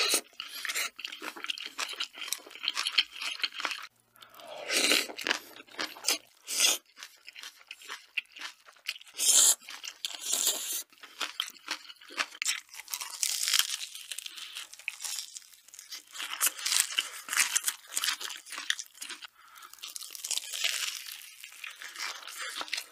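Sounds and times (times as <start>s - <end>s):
crunching bites and chewing: 0.0s - 22.9s
slurping noodles: 9.1s - 10.9s.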